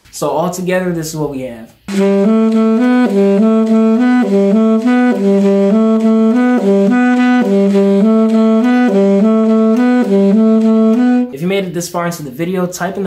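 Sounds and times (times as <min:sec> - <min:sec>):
alto saxophone riff: 0:01.9 - 0:11.4.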